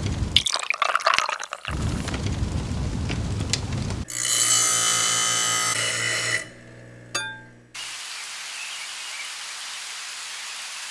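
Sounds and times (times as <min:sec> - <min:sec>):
power grinder whining: 0:04.1 - 0:07.1
metallic clink: 0:07.2 - 0:07.6.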